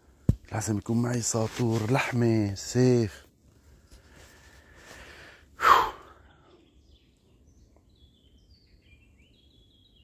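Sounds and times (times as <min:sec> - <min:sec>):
bird chirps: 0:06.2 - 0:10.0.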